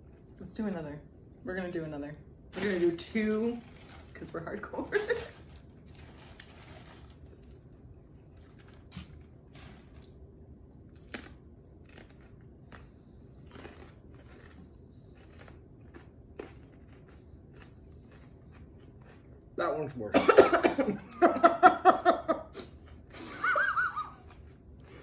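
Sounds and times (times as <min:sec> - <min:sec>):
mouth chewing: 0:10.9 - 0:19.6.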